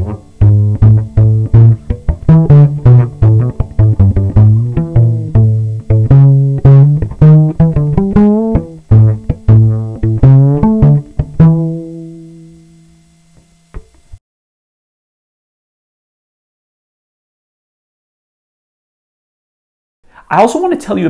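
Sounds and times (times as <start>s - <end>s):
cello plucked pizzicato: 0.0s - 12.8s.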